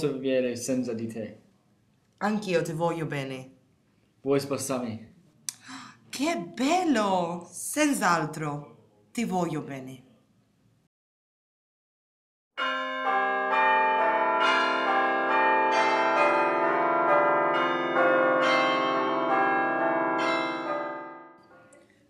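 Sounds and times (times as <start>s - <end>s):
church bells pealing: 12.6s - 21.5s.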